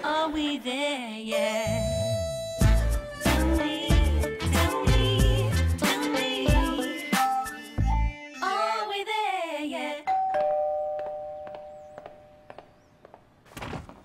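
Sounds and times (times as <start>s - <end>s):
tv theme song: 1.3s - 8.8s
two-note doorbell chime: 10.1s - 12.5s.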